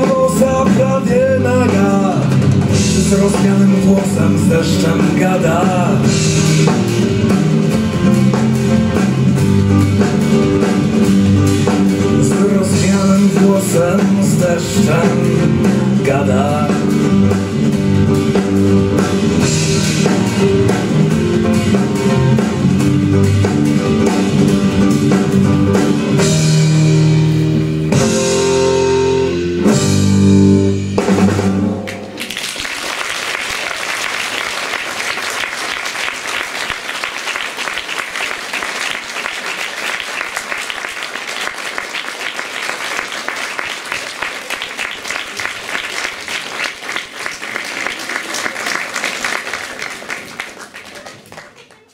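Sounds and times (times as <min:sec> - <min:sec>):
instrumental song: 0:00.0 - 0:32.3
audience applause: 0:31.9 - 0:51.9.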